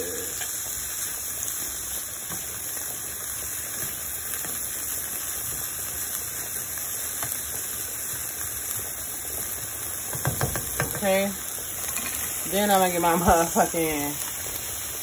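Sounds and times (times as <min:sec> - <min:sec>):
peppers sizzling in oil: 0:00.0 - 0:15.0
spoon tapping pan: 0:10.1 - 0:11.1.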